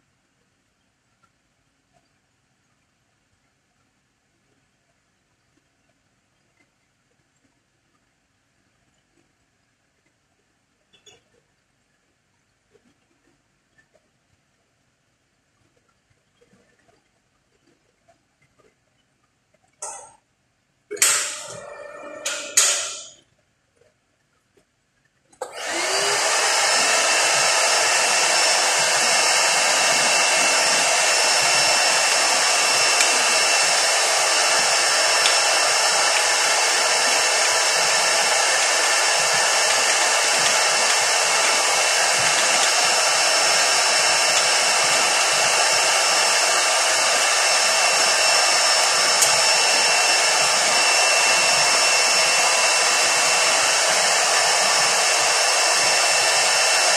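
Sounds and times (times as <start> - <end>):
shop vacuum running: 20.9 - 23.2, 25.4 - 56.9.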